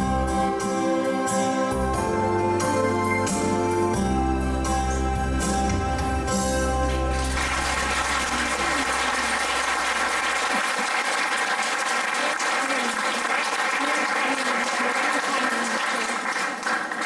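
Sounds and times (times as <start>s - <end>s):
audience applauding: 6.8s - 17.0s
children chattering: 8.1s - 11.0s.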